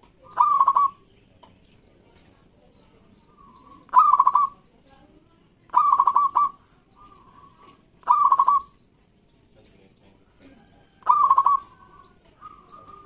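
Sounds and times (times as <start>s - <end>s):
dove cooing: 0.0s - 1.0s, 3.3s - 4.7s, 5.7s - 8.8s, 10.4s - 13.0s.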